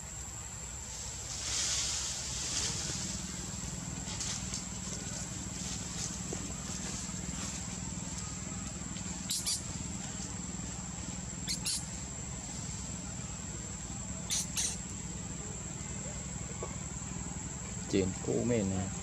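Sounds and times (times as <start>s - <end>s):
high-pitched insect drone: 0.0s - 19.0s
sharp high chirps: 9.2s - 9.8s, 11.4s - 12.1s, 14.2s - 14.9s.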